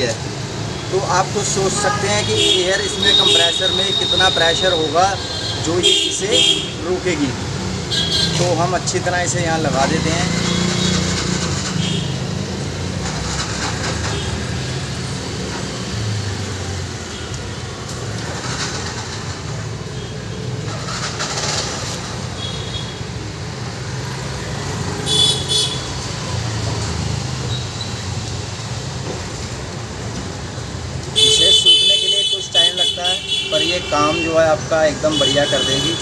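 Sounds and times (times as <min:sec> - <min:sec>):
road traffic rumble: 0:00.0 - 0:36.0
vehicle horn toots: 0:25.1 - 0:25.9, 0:31.2 - 0:34.4.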